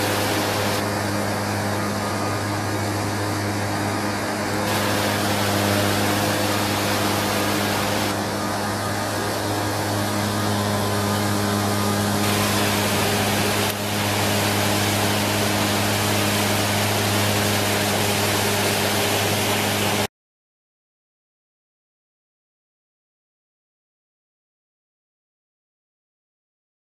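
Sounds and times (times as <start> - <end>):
waterfalls and rapids rushing: 0.0 - 0.8, 4.6 - 8.4, 11.6 - 20.1
low steady hum: 0.0 - 20.1.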